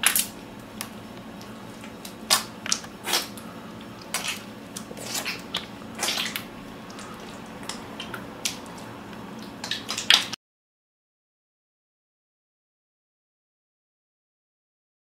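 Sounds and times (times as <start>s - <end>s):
faint steady hum: 0.0s - 10.4s
lathered hands rubbing wet squishes: 1.2s - 10.3s.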